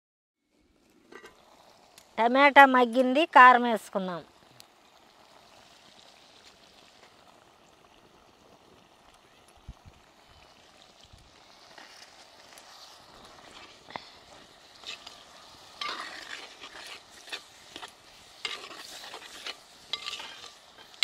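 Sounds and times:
faint sizzle: 0:00.4 - 0:21.0
ladle scraping clay pot: 0:11.8 - 0:21.0.

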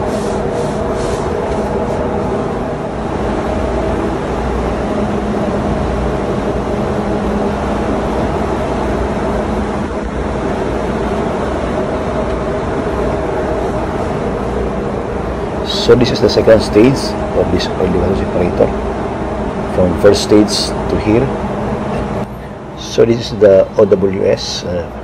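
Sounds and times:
engine room machinery drone: 0:00.0 - 0:25.0.

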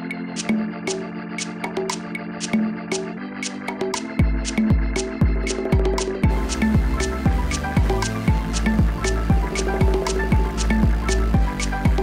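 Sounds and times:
synth keyboard chords: 0:00.0 - 0:12.0
ticking percussion: 0:00.4 - 0:12.0
deep kick drum: 0:04.2 - 0:12.0.

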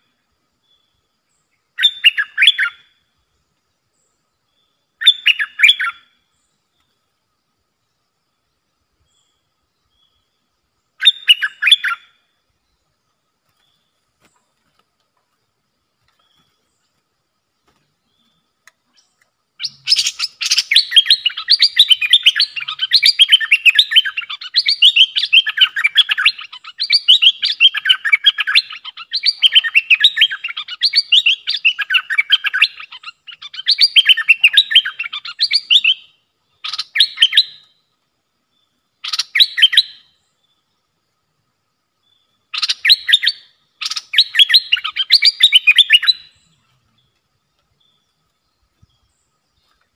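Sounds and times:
bird singing chattering notes: 0:18.1 - 0:37.7, 0:42.4 - 0:47.0.

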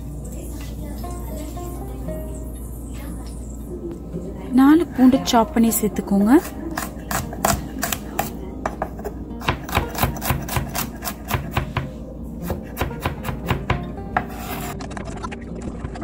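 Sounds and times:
knife chopping on wooden board: 0:06.8 - 0:14.7.

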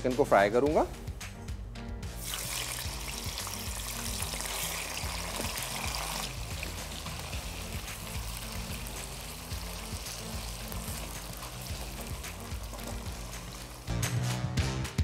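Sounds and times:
background music: 0:00.0 - 0:15.0
chicken sizzling in hot oil: 0:02.1 - 0:14.0
spatula stirring: 0:03.9 - 0:13.9.

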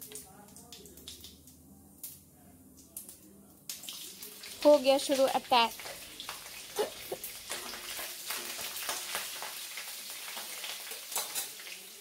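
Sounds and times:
seeds sizzling in hot oil: 0:03.7 - 0:12.0.

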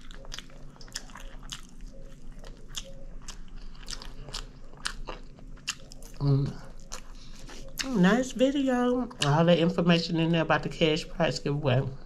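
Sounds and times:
person chewing and biting: 0:00.0 - 0:08.0.

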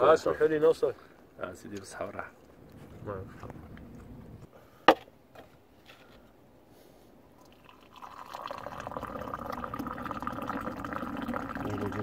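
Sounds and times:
tea pouring into a glass: 0:07.4 - 0:12.0.

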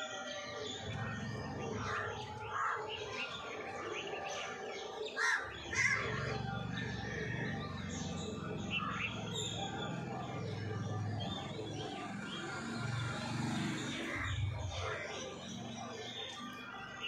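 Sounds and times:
small birds chirping: 0:00.0 - 0:17.0
crows cawing: 0:01.8 - 0:03.1, 0:05.2 - 0:06.4.

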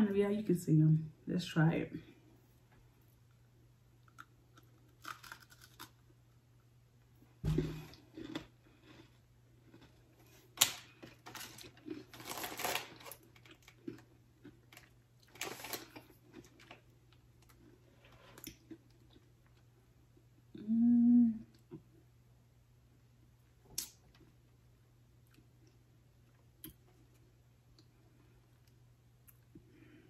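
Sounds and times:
cookie crunching: 0:04.0 - 0:06.4, 0:07.5 - 0:19.7.

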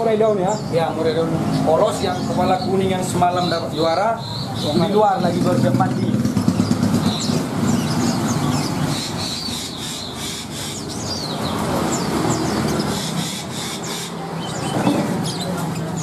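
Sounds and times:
small birds chirping and twittering: 0:00.0 - 0:16.0
motorcycle engine humming: 0:02.1 - 0:09.3.

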